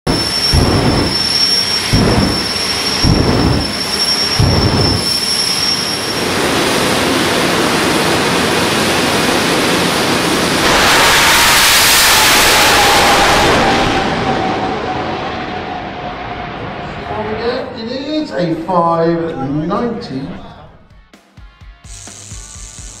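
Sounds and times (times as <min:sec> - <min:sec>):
deep booming blasts: 0:00.0 - 0:05.5
high engine whine: 0:00.0 - 0:18.0.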